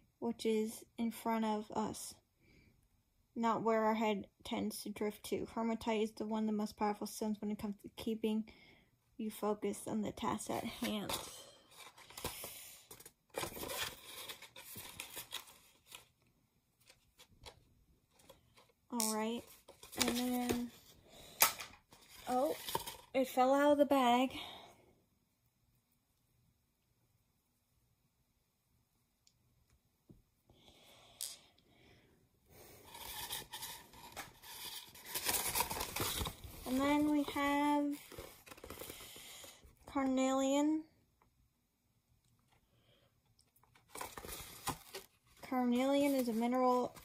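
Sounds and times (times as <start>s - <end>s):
packaging rustling: 10.8s - 16.1s, 21.5s - 23.1s, 32.8s - 39.4s, 43.7s - 45.4s, 46.0s - 47.0s
packaging bag crinkling: 32.9s - 37.2s.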